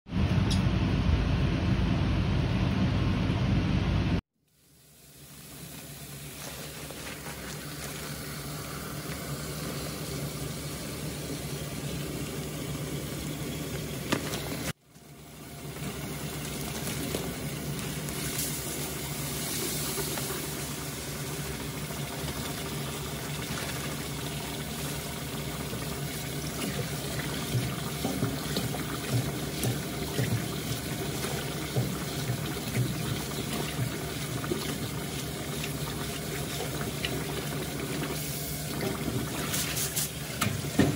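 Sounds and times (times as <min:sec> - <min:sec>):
low hum: 0:00.1 - 0:04.2
rice poured into water: 0:04.7 - 0:09.4
tap water running into steel bowl: 0:05.0 - 0:40.9
hands scrubbing rice in water: 0:06.2 - 0:08.5, 0:26.4 - 0:40.9.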